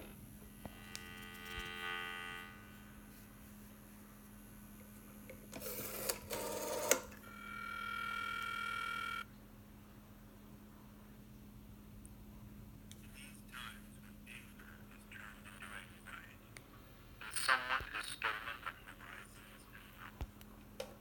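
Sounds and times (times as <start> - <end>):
multi-pitch electronic tone: 0.0 - 3.0
steady electronic tone: 0.0 - 3.1
rotary dial whirring and clicking: 5.2 - 9.2.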